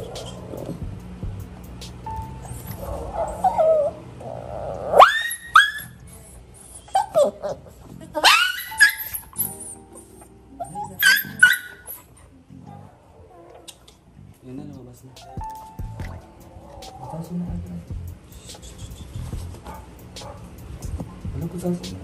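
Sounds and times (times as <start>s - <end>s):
dog yelping: 2.5s - 6.0s, 6.8s - 13.6s.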